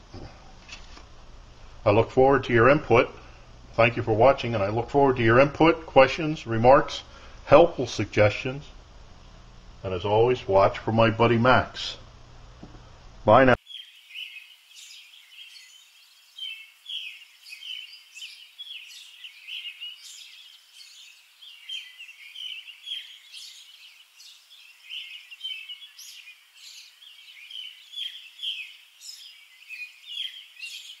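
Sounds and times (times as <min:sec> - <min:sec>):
small birds chirping: 0:13.5 - 0:31.0.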